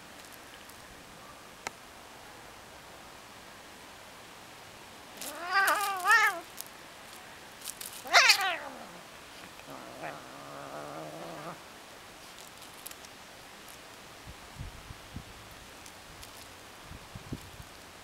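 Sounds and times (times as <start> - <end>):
cat meowing: 5.2 - 6.5, 8.0 - 9.0.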